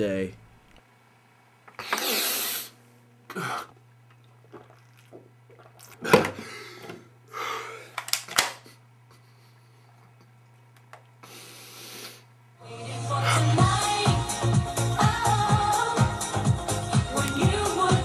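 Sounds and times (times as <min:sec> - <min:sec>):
man snorting through nose: 0:01.8 - 0:03.7
man gasping: 0:06.1 - 0:08.0.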